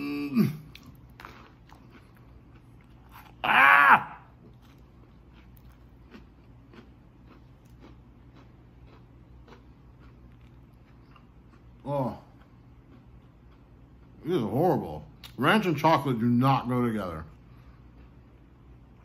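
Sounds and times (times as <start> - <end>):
man groaning in disgust: 0.0 - 0.7
man chewing tortilla: 0.0 - 15.4, 17.2 - 19.0.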